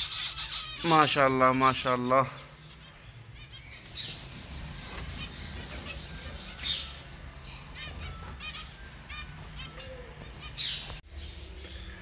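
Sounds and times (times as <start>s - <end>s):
finches chirping: 0.0s - 12.0s
wings fluttering: 3.7s - 10.4s.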